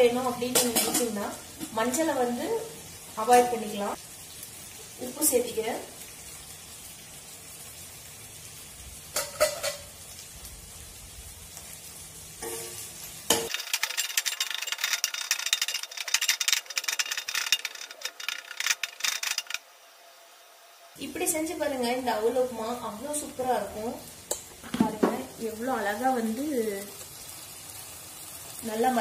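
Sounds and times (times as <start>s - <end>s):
masala frying in a pan: 0.0s - 29.0s
steel spatula scraping a pan: 12.4s - 19.6s.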